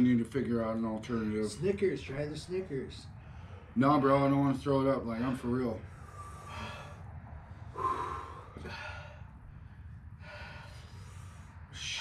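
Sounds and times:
man breathing hard: 0:03.1 - 0:03.8, 0:05.8 - 0:12.0.

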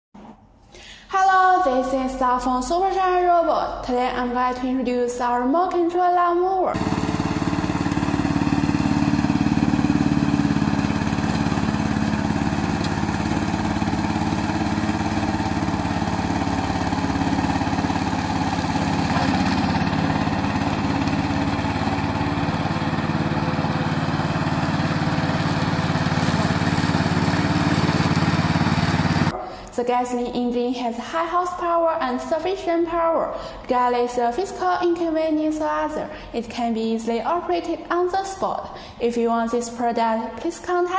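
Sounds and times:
grass being cut: 0:06.8 - 0:29.3
mower engine running: 0:06.8 - 0:29.3.

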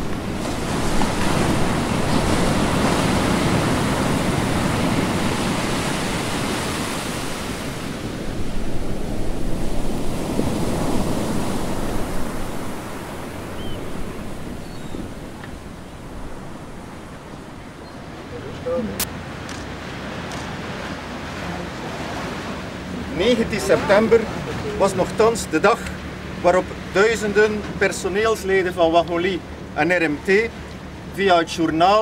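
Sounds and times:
wind buffeting microphone: 0:00.0 - 0:23.2
sea wash: 0:00.0 - 0:32.0.

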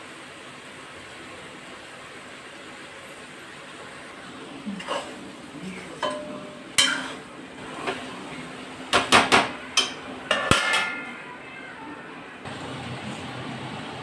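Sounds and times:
metal spatula clinking against pan: 0:06.0 - 0:07.2, 0:09.7 - 0:11.0
metal plate clattering on pan: 0:06.0 - 0:08.1, 0:08.9 - 0:11.2.

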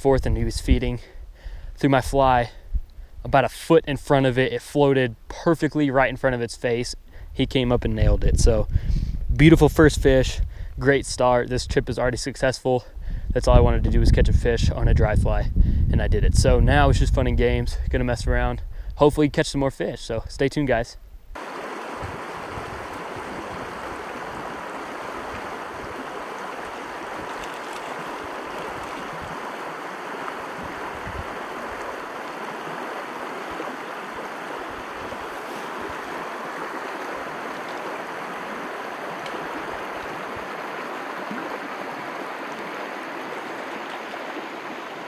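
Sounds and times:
stream running over rocks: 0:21.4 - 0:45.0.

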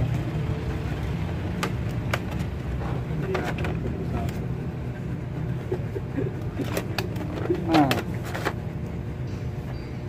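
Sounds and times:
plastic tray clicks and crackles: 0:06.6 - 0:08.6.

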